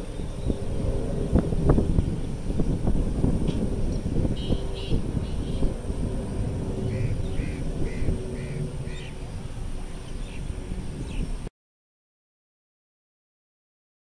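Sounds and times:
distant jet airliner drone: 0.0s - 11.5s
wind rumbling on microphone: 0.0s - 11.5s
bird calling: 4.4s - 5.7s, 6.8s - 11.3s.

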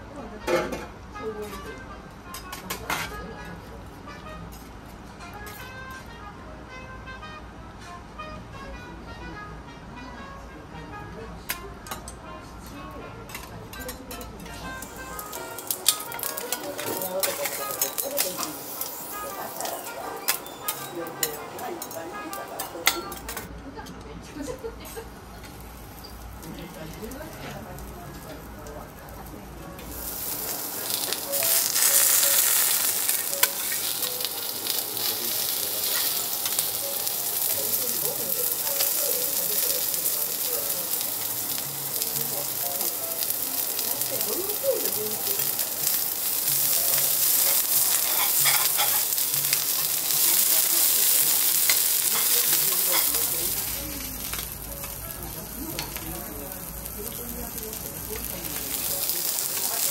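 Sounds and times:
faint voices: 8.6s - 59.9s
fat sizzling on a griddle: 12.8s - 23.5s, 24.4s - 59.9s
metal spatulas scraping a plate: 47.5s - 49.1s.

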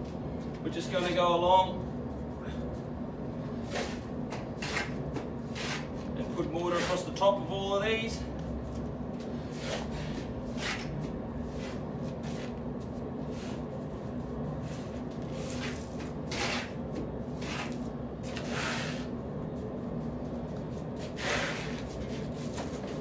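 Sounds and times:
steady low hum: 0.0s - 23.0s
trowel scraping mortar: 3.6s - 6.1s, 6.7s - 7.2s, 9.5s - 10.9s, 15.4s - 16.8s, 17.4s - 19.1s, 21.0s - 22.6s.

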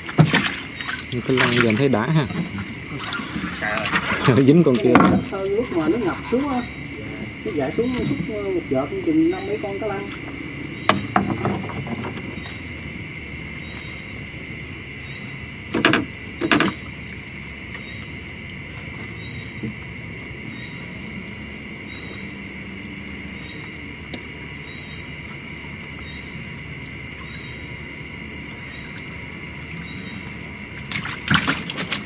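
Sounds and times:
faint insect chirp: 0.0s - 32.0s
insects trilling: 0.0s - 32.0s
loud thumps: 10.8s - 12.6s.

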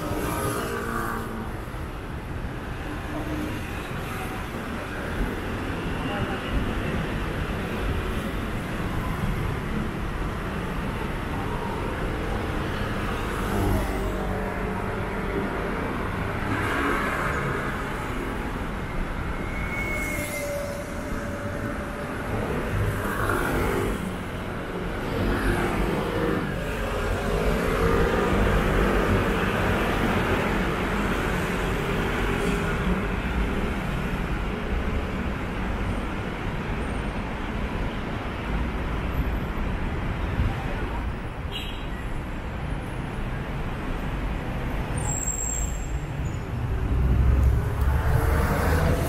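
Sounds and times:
cars passing on street: 0.0s - 49.0s.

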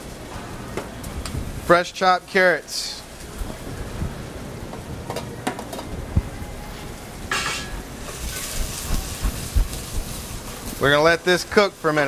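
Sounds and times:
vegetables sizzling in oil: 7.4s - 12.0s.

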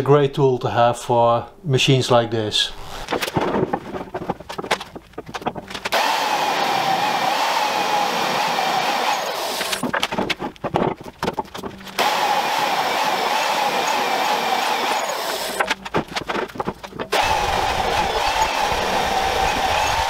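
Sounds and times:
clicks and knocks: 3.0s - 6.0s, 9.6s - 12.1s, 15.5s - 17.2s
drill motor whining: 5.9s - 9.9s, 11.9s - 15.8s, 17.1s - 20.0s.

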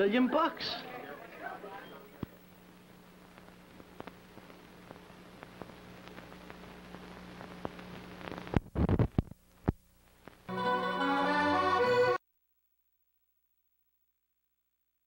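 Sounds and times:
tape hiss and hum: 0.0s - 12.2s
crackling pops: 2.2s - 10.5s
faint clicks: 3.3s - 10.4s.

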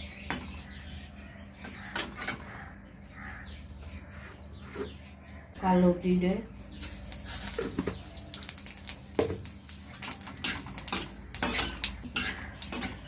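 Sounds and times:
seeds sizzling in hot oil: 6.8s - 13.0s
metal spatula scraping pan: 10.4s - 13.0s.

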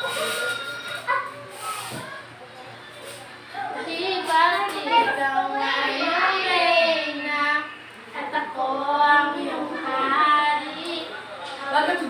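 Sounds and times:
young girls singing: 3.8s - 12.0s.

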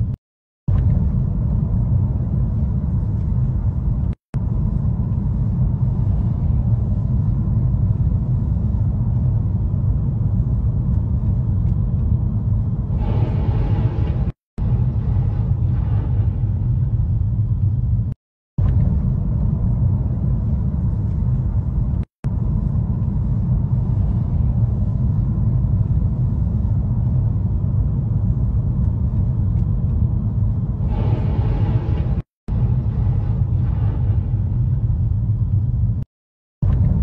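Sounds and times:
car driving heard from inside: 0.0s - 36.0s
brighter rushing noise: 12.9s - 17.7s, 30.8s - 36.0s.

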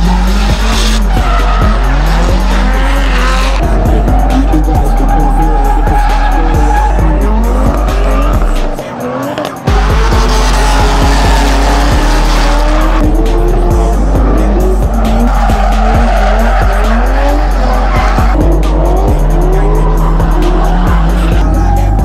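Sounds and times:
tyres squealing: 0.0s - 9.8s
car engines revving: 0.0s - 22.0s
music with heavy bass beat: 0.0s - 22.0s.

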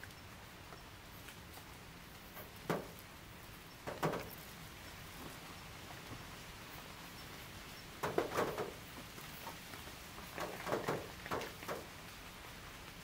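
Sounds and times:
faint steady hiss: 0.0s - 13.0s
short knocks: 2.4s - 3.0s, 3.9s - 4.4s, 8.0s - 8.8s.

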